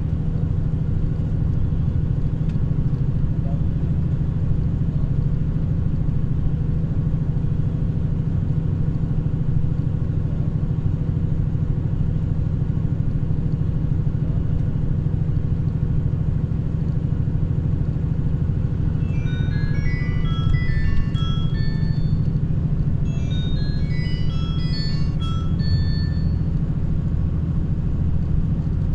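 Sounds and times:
road noise: 0.0s - 28.9s
vehicle engine drone: 0.0s - 28.9s
tinkling chime melody: 19.0s - 26.6s.

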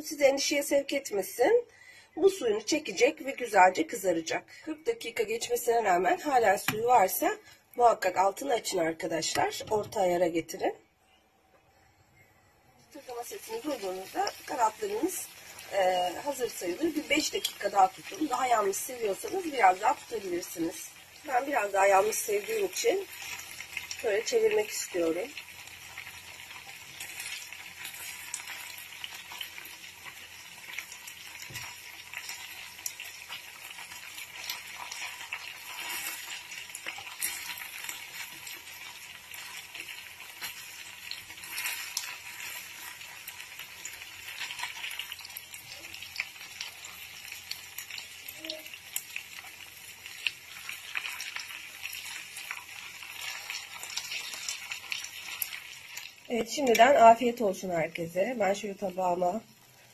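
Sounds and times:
chicken wings sizzling and crackling: 12.9s - 59.9s.

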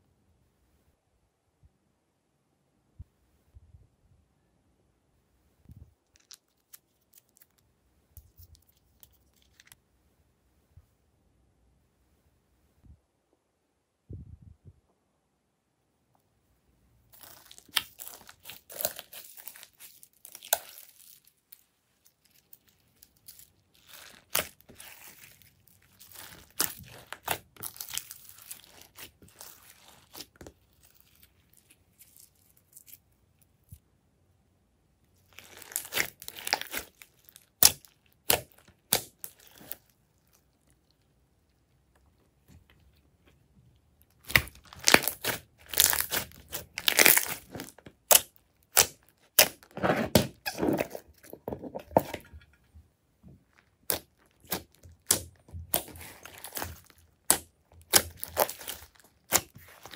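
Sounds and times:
slime squished by hand: 17.1s - 33.0s, 35.3s - 41.0s, 44.0s - 51.4s, 53.4s - 59.9s
sticky crackling with sharp pops: 53.8s - 59.9s.

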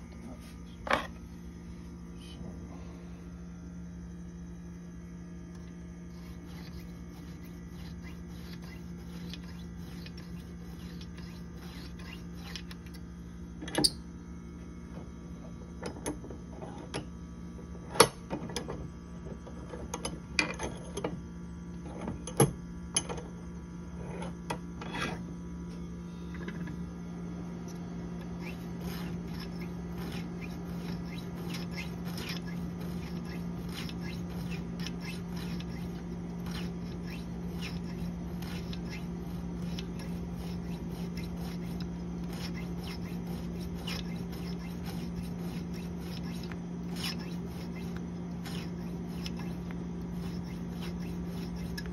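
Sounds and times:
steady low hum: 0.0s - 51.9s
blade scraping on sharpener: 5.6s - 13.0s, 28.2s - 51.9s.

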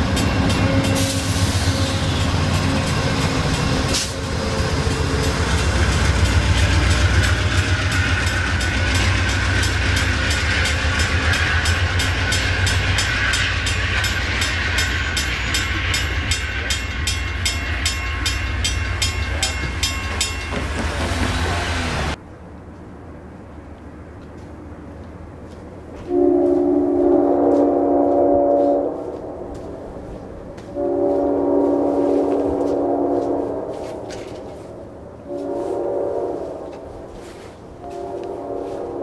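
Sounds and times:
crossing warning bell: 0.0s - 22.2s
train rumbling past: 0.0s - 39.0s.

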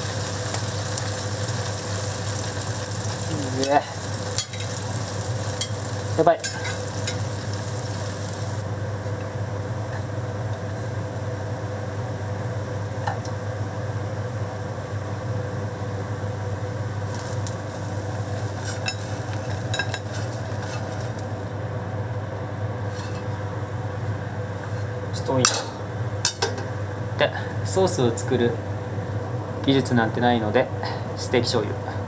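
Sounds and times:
food sizzling in frying pans: 0.0s - 13.8s, 14.6s - 21.6s, 22.8s - 23.4s
steady low hum: 0.0s - 32.0s
utensils clinking against pans: 4.4s - 4.8s, 6.4s - 7.3s, 18.6s - 21.1s, 25.4s - 26.7s.

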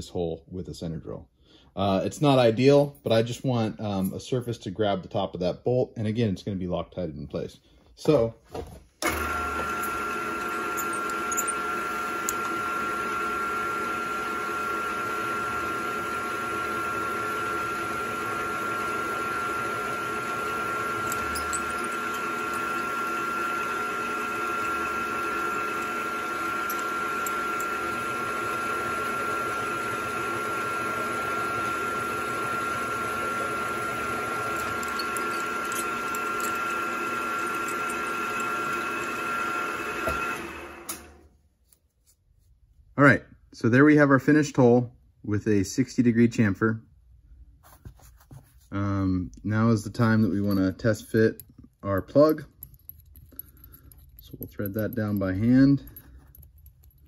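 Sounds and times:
milling machine motor whine: 9.0s - 41.2s.

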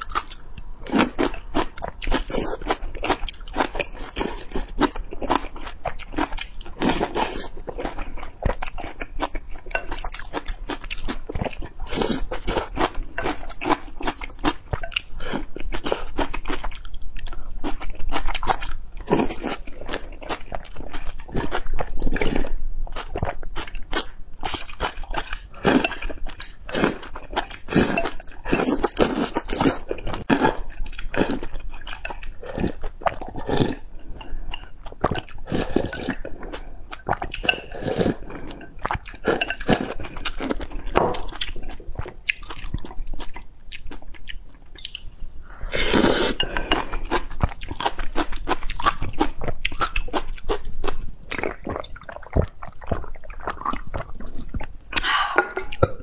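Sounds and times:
loud slurp of noodles: 45.6s - 46.4s
person gulping and swallowing: 51.2s - 56.0s.

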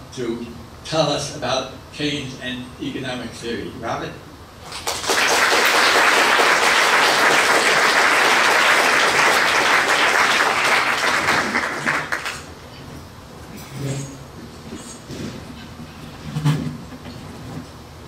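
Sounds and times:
audience applauding: 4.7s - 12.5s.

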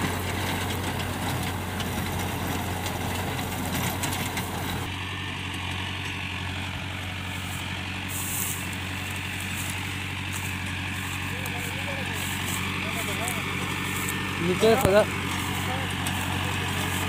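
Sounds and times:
rotavator blades rattling: 0.0s - 4.9s, 8.6s - 17.0s
tractor diesel engine running: 0.0s - 17.0s.

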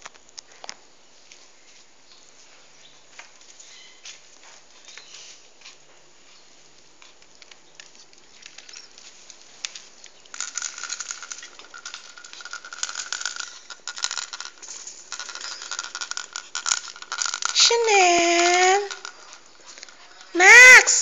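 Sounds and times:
dog claws clicking on tile floor: 6.8s - 21.0s.

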